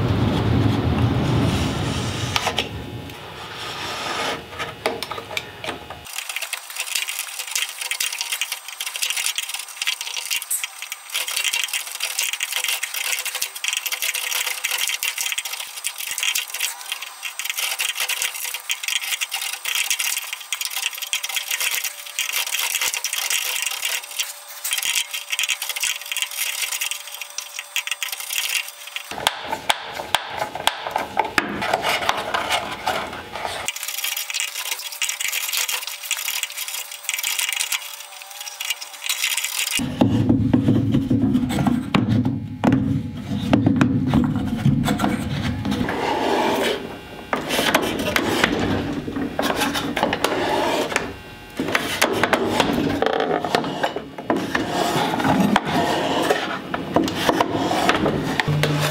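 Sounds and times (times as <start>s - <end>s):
chisel scraping wood: 3.4s - 5.0s, 29.3s - 33.7s, 44.9s - 46.8s, 47.4s - 48.6s, 49.4s - 58.9s
knocks and rubbing: 29.2s - 33.7s, 39.9s - 46.8s, 47.4s - 58.9s.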